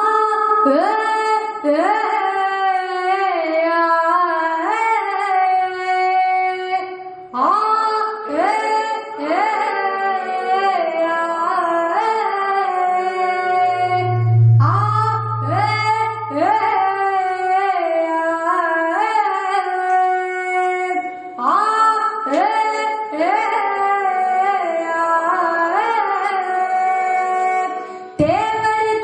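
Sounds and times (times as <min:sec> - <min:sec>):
woman singing folk song: 0:15.8 - 0:29.0.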